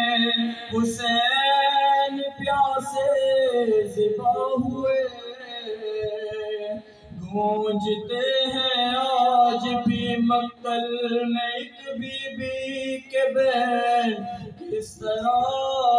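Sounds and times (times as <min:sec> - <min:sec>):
man chanting a lament: 0:00.0 - 0:15.9.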